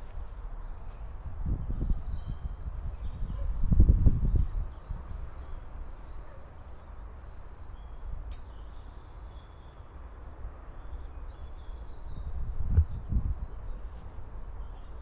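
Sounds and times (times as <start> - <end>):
wind buffeting microphone: 0.0 - 8.3, 11.8 - 15.0
click: 8.3 - 8.5.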